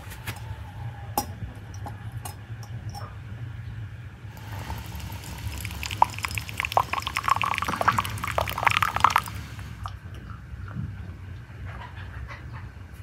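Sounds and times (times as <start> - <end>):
liquid pouring and gurgling: 4.4 - 10.4.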